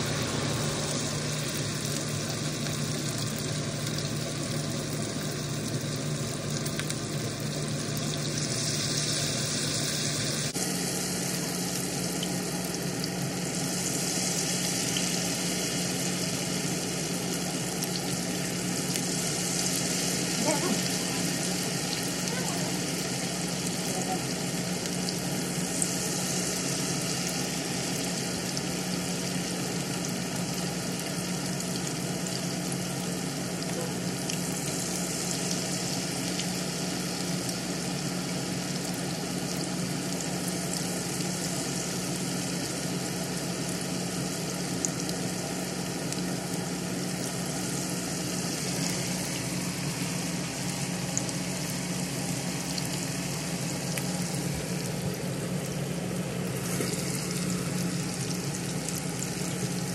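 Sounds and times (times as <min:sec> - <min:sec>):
fritters deep-frying in oil: 0:00.0 - 0:59.9
oil crackling: 0:46.0 - 0:59.9.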